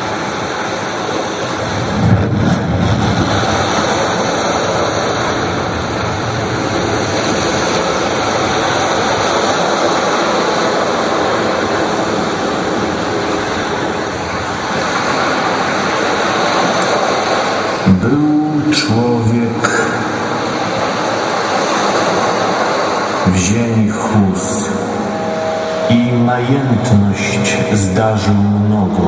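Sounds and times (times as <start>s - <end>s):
steady rushing noise: 0.0s - 29.0s.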